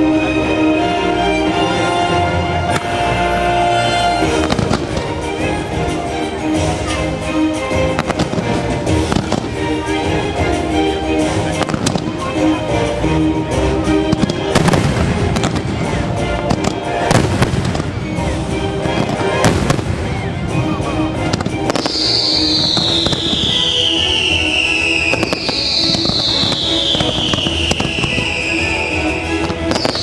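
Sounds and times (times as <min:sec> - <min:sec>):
music: 0:00.0 - 0:30.0
firework crackling: 0:03.9 - 0:12.7, 0:14.1 - 0:30.0
firework bangs: 0:04.2 - 0:05.6, 0:07.9 - 0:09.9, 0:11.4 - 0:12.3, 0:14.1 - 0:30.0
firework whistles gliding down: 0:21.4 - 0:30.0.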